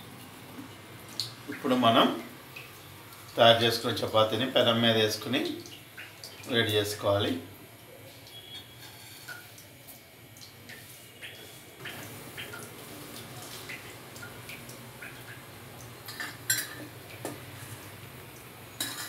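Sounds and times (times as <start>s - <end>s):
metal spatula scraping iron griddle: 8.7s - 9.3s.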